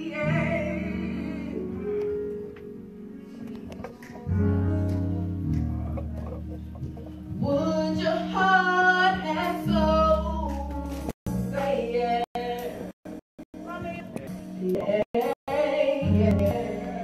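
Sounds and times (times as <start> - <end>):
woman singing: 0.0 - 2.0, 7.4 - 12.9, 13.6 - 17.0
held instrumental chords: 0.2 - 17.0.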